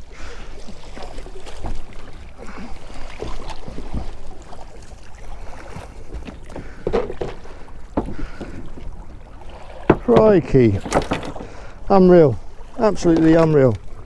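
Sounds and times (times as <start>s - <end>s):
water sloshing against boat: 0.0s - 14.0s
short knocks: 6.1s - 8.6s, 9.8s - 11.6s.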